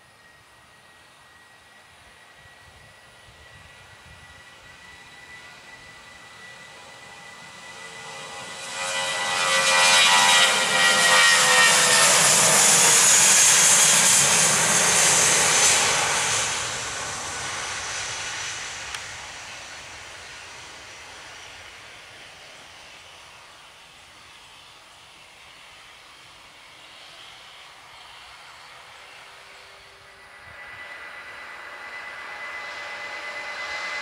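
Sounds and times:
jet engines at take-off thrust: 0.0s - 34.0s.

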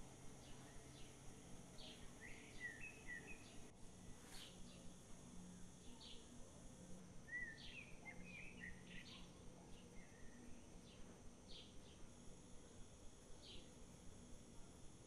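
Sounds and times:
faint low hum: 0.0s - 15.0s
faint bird chirps: 1.8s - 3.7s, 7.2s - 9.3s.

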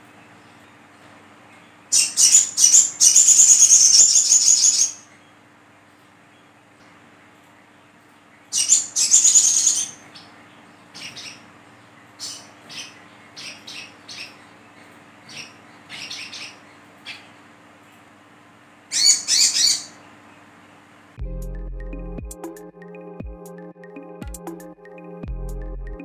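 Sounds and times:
bird chirping and chattering: 1.9s - 5.0s, 8.5s - 10.0s, 12.2s - 17.4s, 18.9s - 19.9s.

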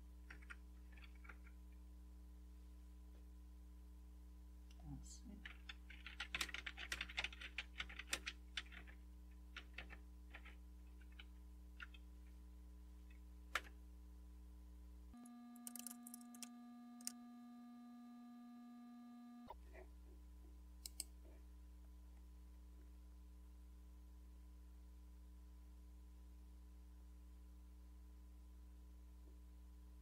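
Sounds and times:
low electrical hum: 0.0s - 30.0s
computer keyboard typing: 0.3s - 1.6s, 5.4s - 12.0s, 15.2s - 17.2s.

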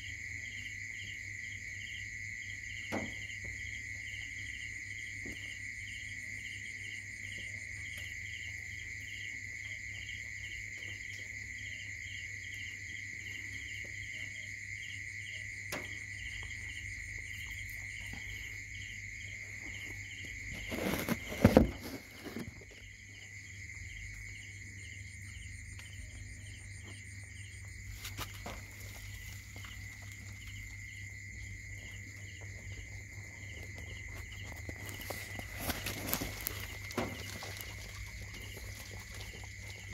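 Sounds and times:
insects chirping: 0.0s - 39.9s
short bump and rustle: 20.4s - 22.8s.

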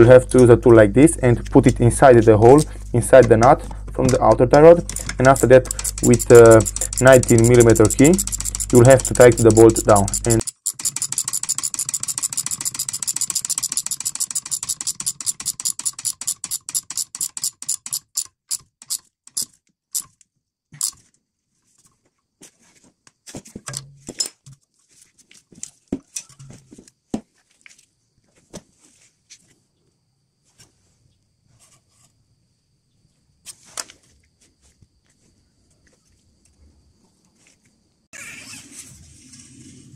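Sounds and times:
metallic clicks and knocks: 2.2s - 20.1s
ratchet wrench clicking: 2.5s - 2.9s, 4.1s - 20.1s.

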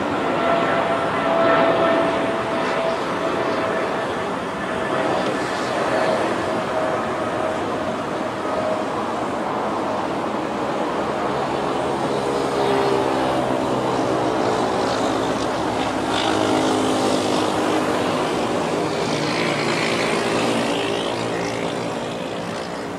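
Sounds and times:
engine tonal drone: 0.0s - 22.9s
jet engine roar: 0.0s - 22.9s.

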